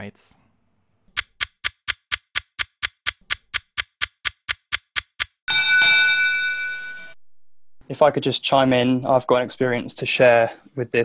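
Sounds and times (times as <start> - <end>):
clock-like ticking: 1.2 - 5.5.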